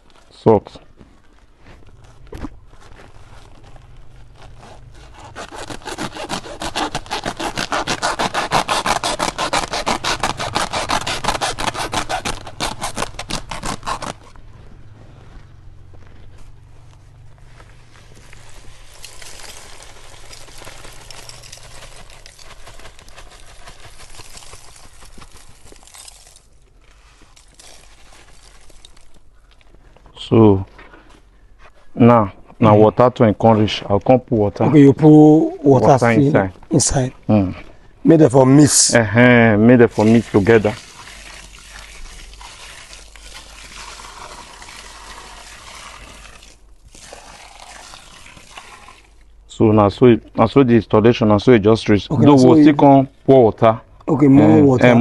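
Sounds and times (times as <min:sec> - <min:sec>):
salt granules pouring: 0:18.4 - 0:26.5, 0:27.4 - 0:29.2, 0:39.9 - 0:49.2.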